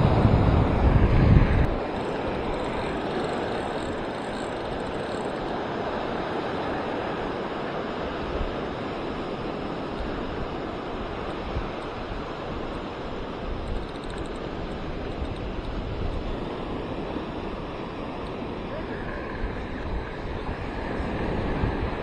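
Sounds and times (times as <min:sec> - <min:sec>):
wind rumbling on microphone: 0:00.0 - 0:22.0
surf breaking on beach: 0:14.4 - 0:22.0.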